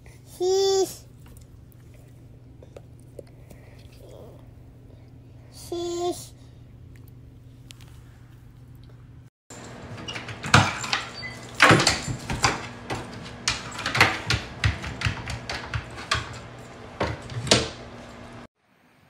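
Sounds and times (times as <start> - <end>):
wooden knocks and clacks: 10.0 - 17.8.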